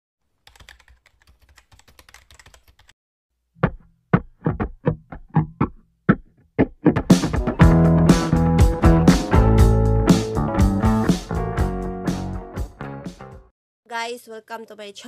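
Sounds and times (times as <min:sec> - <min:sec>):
keyboard typing clicks: 0:00.5 - 0:02.9.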